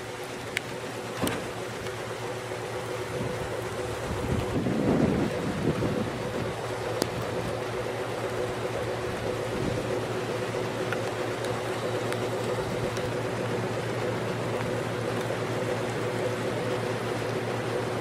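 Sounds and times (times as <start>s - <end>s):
low mechanical hum: 0.0s - 18.0s.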